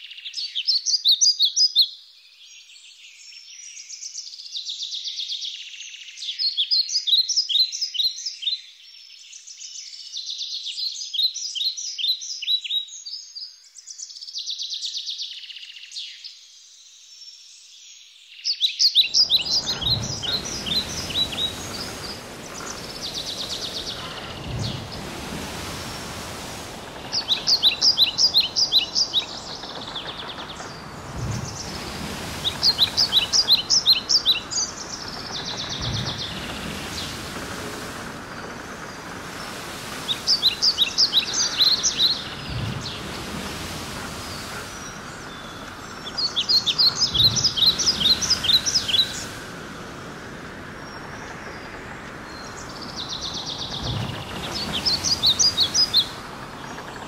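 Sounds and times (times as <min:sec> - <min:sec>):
songbirds chirping and trilling: 0:00.0 - 0:57.0
steady background hiss: 0:18.9 - 0:57.0
faint low rumbles: 0:19.1 - 0:57.0.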